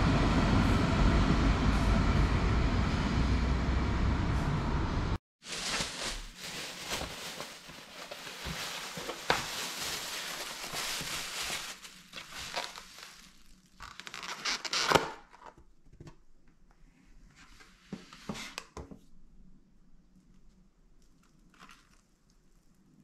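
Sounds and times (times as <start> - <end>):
plastic bag rustling: 5.4 - 14.8
foam box lid crackling: 5.4 - 15.3.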